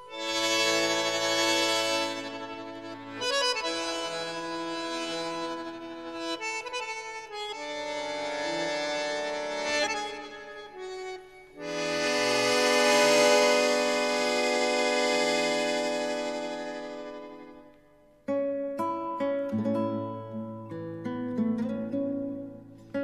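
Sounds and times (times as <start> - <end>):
accordion chords: 0.0 - 18.1.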